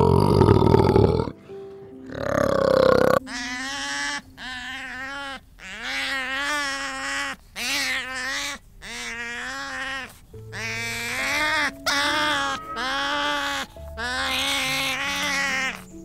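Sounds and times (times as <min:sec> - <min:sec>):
rough throaty sound: 0:00.0 - 0:01.4
sea otters crying: 0:02.1 - 0:16.0.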